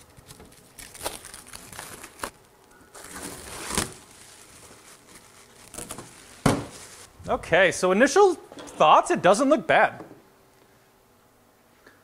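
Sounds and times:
plastic wrap crinkling: 0:00.0 - 0:07.1.

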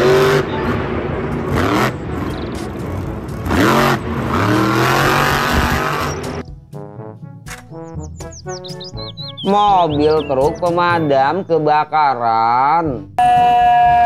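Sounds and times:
truck engine revving: 0:00.0 - 0:06.5.

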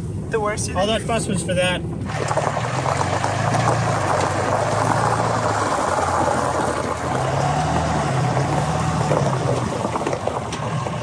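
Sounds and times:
truck engine humming: 0:02.0 - 0:11.0
tyre chains clattering on icy road: 0:02.2 - 0:11.0.

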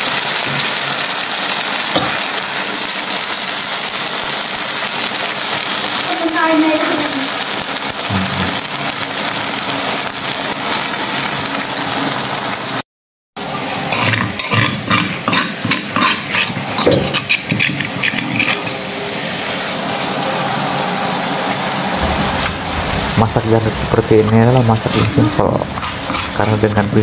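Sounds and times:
insects sizzling in oil: 0:00.0 - 0:12.8, 0:13.8 - 0:21.8, 0:24.3 - 0:27.0
metal spatula stirring in wok: 0:13.9 - 0:18.8, 0:24.8 - 0:26.8
utensils scraping and knocking: 0:13.9 - 0:18.8, 0:24.2 - 0:26.9.

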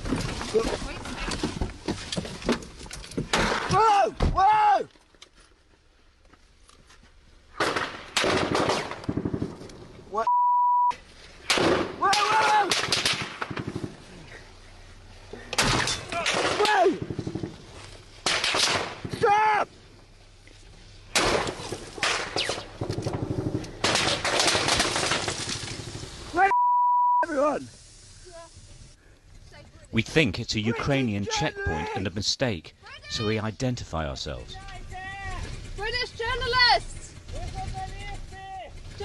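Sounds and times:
short steady beep tone: 0:10.3 - 0:11.0, 0:26.5 - 0:27.3.

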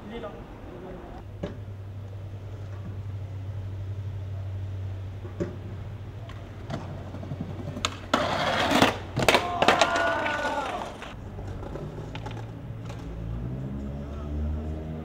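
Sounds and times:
steady low hum: 0:00.0 - 0:08.2
skateboard clacking on ground: 0:06.2 - 0:13.1
skateboard scraping: 0:06.3 - 0:13.3.

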